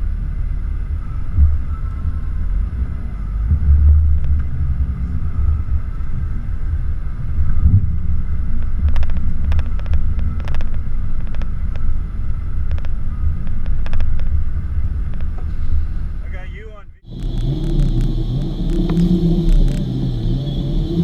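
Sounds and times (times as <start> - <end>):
vehicle engine rumble: 0.0 - 21.0
sharp clicks and rattles: 7.7 - 15.7, 17.0 - 21.0.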